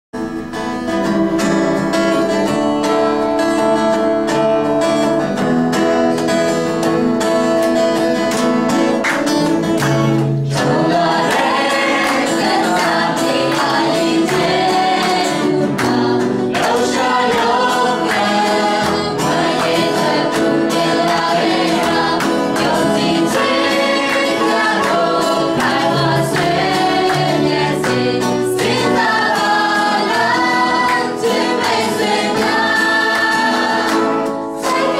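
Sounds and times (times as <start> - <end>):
guitar chords: 0.2 - 34.9
group singing: 10.0 - 34.9.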